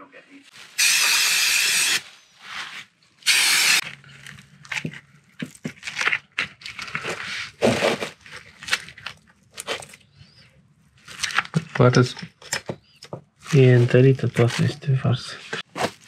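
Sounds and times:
tools and parts clicking and knocking: 0:11.1 - 0:13.3.

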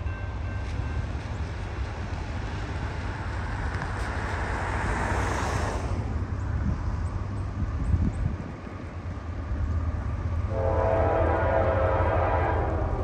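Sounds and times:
wind rumble on microphone: 0:05.6 - 0:13.0
distant train horn: 0:10.4 - 0:13.0.

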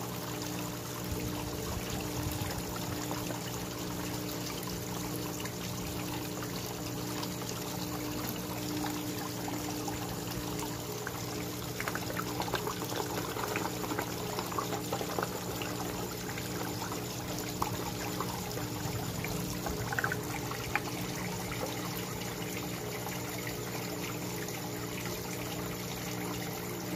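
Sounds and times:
waterfall splashing into pond: 0:01.1 - 0:23.6
small splashes and clicks on water: 0:08.8 - 0:18.2.

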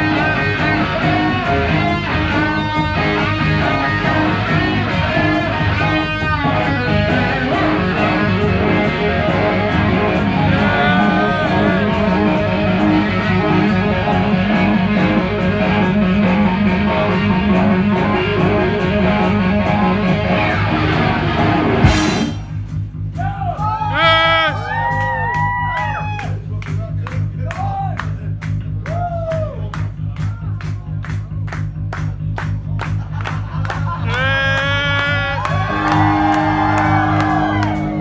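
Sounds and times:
lead electric guitar bending notes: 0:00.0 - 0:22.6, 0:34.1 - 0:38.0
hard rock band playing live: 0:00.0 - 0:23.3, 0:32.9 - 0:38.0.

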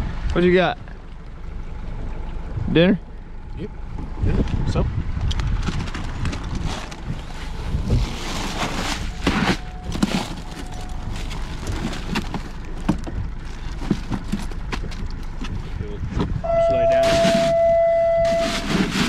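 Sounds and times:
wind buffeting microphone: 0:03.9 - 0:10.4
knocks and rustling in cooler: 0:05.5 - 0:19.0.

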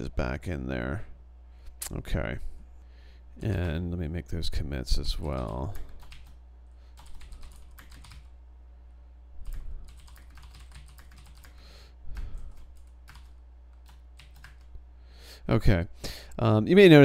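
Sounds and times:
low electrical hum: 0:00.0 - 0:17.0
keyboard typing: 0:05.2 - 0:08.3, 0:09.4 - 0:14.7.

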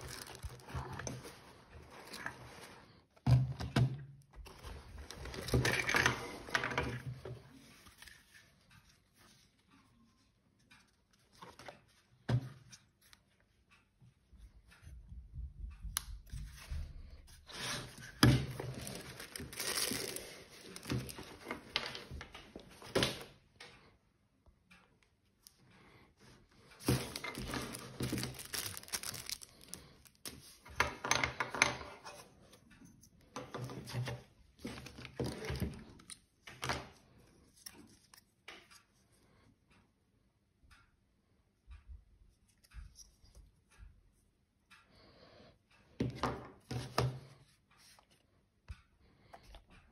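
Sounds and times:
fabric and plastic rustling: 0:00.0 - 0:03.2, 0:04.4 - 0:09.5, 0:16.4 - 0:23.3, 0:26.2 - 0:30.7
plastic object handling rubs and knocks: 0:26.2 - 0:29.7.

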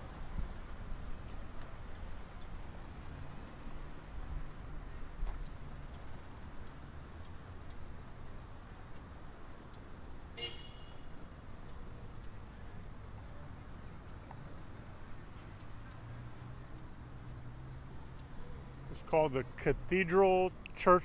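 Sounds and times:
low traffic rumble: 0:00.0 - 0:21.0
car horn toot: 0:10.4 - 0:11.1.

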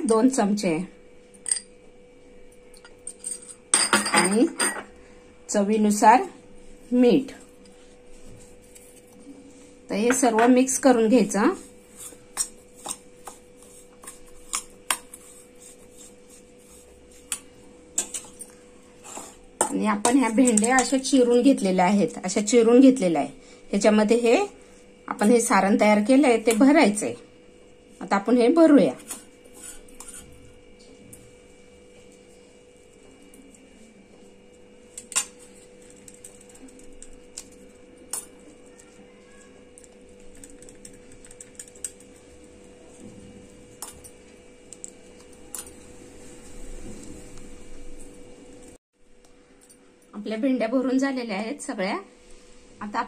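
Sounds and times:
steady low hum: 0:00.0 - 0:53.0
spoon stirring dry stuffing: 0:11.0 - 0:21.1, 0:29.0 - 0:30.4.

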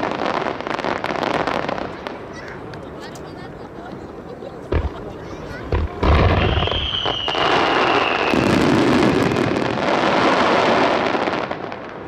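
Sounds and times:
fireworks crackling: 0:00.0 - 0:12.0
high firework whistle: 0:06.1 - 0:09.6.

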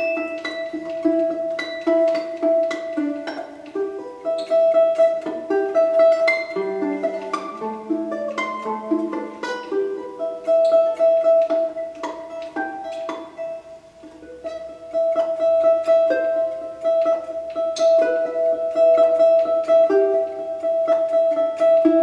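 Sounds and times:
plucked string instrument melody: 0:00.0 - 0:22.0.

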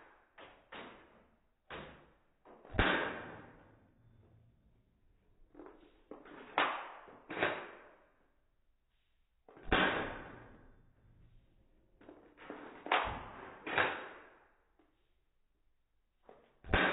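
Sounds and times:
bb gun shots ringing: 0:02.7 - 0:03.6, 0:09.7 - 0:10.7, 0:16.7 - 0:16.9.

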